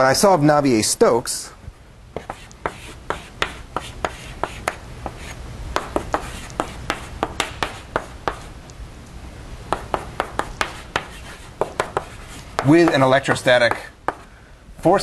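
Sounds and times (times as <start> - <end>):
chalk tapping and scratching on blackboard: 2.2 - 8.6, 9.7 - 14.3.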